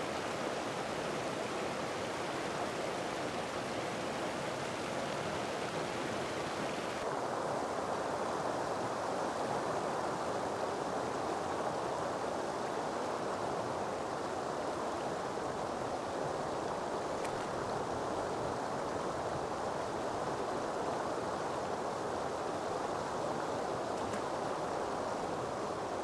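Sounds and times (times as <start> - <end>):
flowing river water: 0.0 - 26.0.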